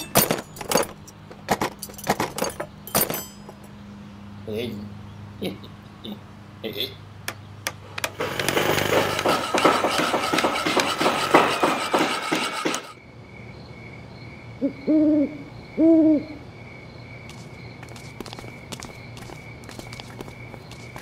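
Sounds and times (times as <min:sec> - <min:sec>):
clatter of knocks and tools: 0:00.0 - 0:03.7, 0:08.0 - 0:13.0
crickets chirping: 0:13.0 - 0:21.0
owl hooting: 0:14.6 - 0:16.4.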